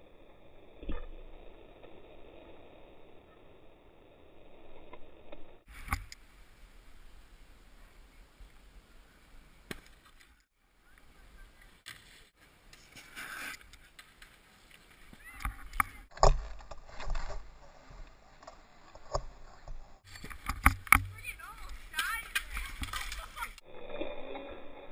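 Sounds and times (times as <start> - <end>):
snowboard scraping on snow: 11.6 - 15.2.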